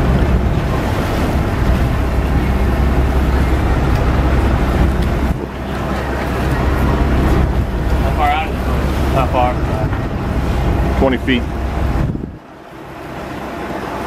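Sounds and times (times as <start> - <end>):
boat engine running: 0.0 - 14.0
water rushing along hull: 0.0 - 14.0
wind buffeting microphone: 0.0 - 14.0.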